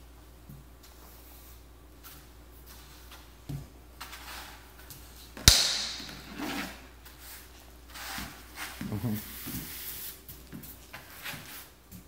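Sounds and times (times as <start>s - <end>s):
sharp knock: 5.4s - 6.2s
toy broom swishing on floor: 6.1s - 12.0s.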